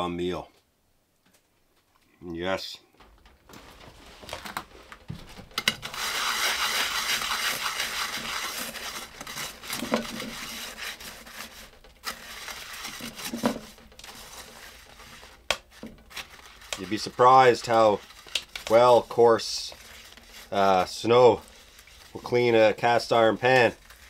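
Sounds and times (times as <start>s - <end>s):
snow scrubbed in metal pan: 5.8s - 24.0s.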